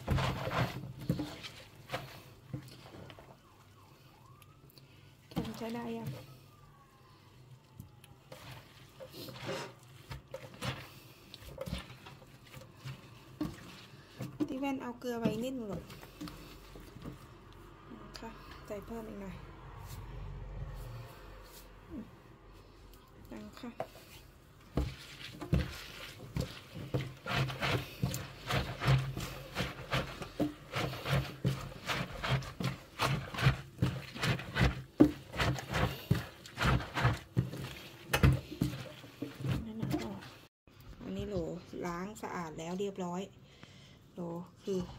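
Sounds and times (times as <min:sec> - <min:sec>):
wet squelching and crunching: 0:00.0 - 0:17.9, 0:22.6 - 0:40.5.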